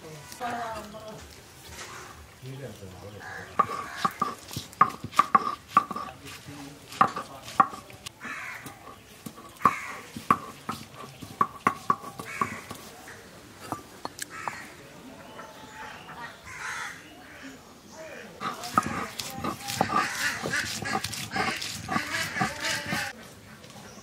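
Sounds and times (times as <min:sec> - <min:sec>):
knife chopping food on cutting board: 0:03.6 - 0:08.0, 0:08.6 - 0:12.9, 0:18.4 - 0:23.1.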